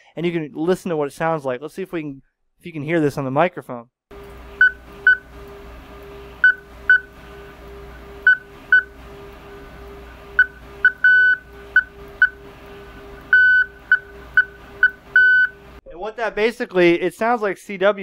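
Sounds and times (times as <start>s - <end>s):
radio tone beeps: 10.4s - 12.4s, 13.3s - 15.6s.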